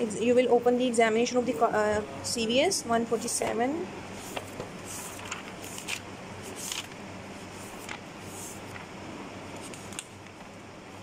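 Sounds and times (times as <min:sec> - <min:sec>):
steady low hum: 0:00.0 - 0:11.0
notebook pages flipping: 0:04.2 - 0:08.9, 0:09.6 - 0:10.5.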